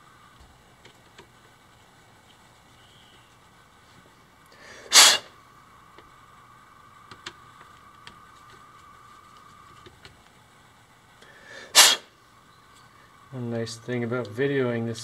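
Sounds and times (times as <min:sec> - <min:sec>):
short loud rush of noise: 0:04.9 - 0:05.3, 0:11.8 - 0:12.1.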